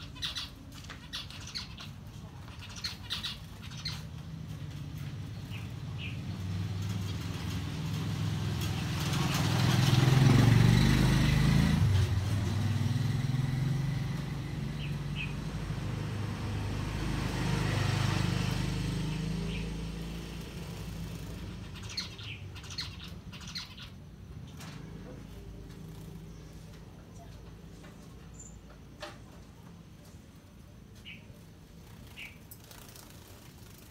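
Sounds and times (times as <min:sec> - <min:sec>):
finches chirping: 0:00.0 - 0:04.2, 0:21.2 - 0:24.6, 0:32.0 - 0:32.5
vehicles passing by: 0:00.0 - 0:33.9.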